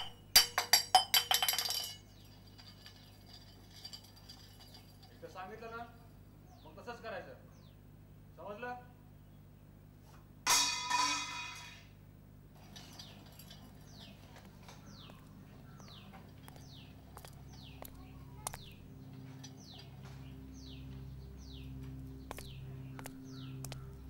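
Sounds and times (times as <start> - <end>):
steel tumbler clanging on stone: 0.0 - 5.4, 10.5 - 11.9, 12.6 - 14.4, 16.2 - 20.1
bird chirping: 6.3 - 7.9, 12.9 - 24.0.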